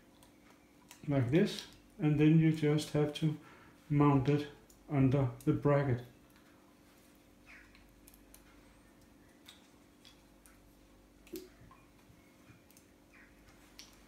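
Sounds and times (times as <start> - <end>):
small clicks of developing tank: 11.2 - 11.9.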